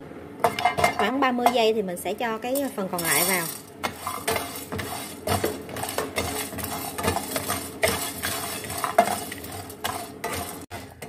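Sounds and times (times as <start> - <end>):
spices rattling in metal pan: 0.4 - 1.8, 2.4 - 11.0
wooden spatula scraping pan: 3.0 - 11.0.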